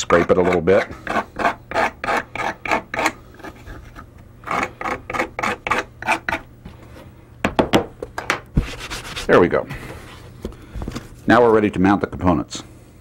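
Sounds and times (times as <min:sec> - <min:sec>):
knife scraping panel edges: 0:00.0 - 0:06.4.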